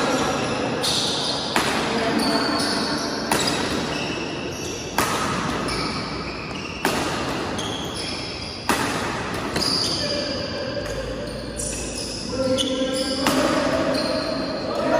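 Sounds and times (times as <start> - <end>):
badminton racket hitting shuttlecock: 3.2 - 4.2, 4.8 - 10.1.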